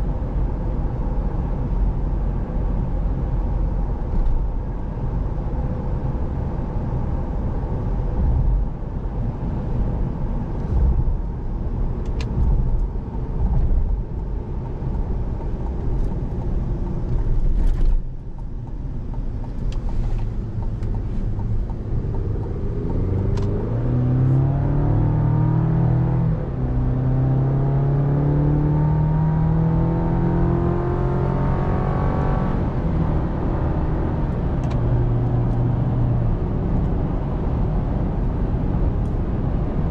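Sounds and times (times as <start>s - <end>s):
road and tyre rumble: 0.0s - 39.9s
engine accelerating: 21.1s - 32.8s.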